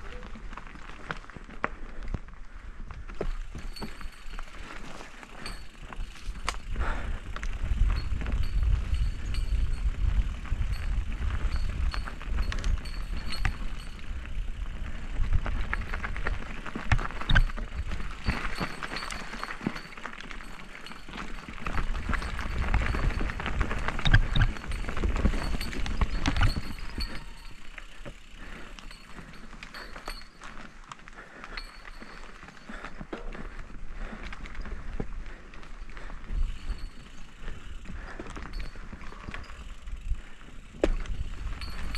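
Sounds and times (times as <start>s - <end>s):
bike tyres rolling over dirt: 0.0s - 41.9s
wind rumble on microphone: 5.4s - 27.8s, 31.5s - 41.9s
bike knocks and rattles: 40.2s - 41.9s.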